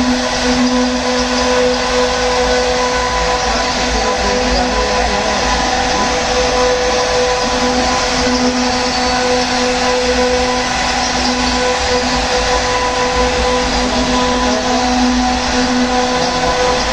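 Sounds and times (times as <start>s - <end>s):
cutters carving wood: 0.0s - 16.9s
router spindles whining: 0.0s - 16.9s.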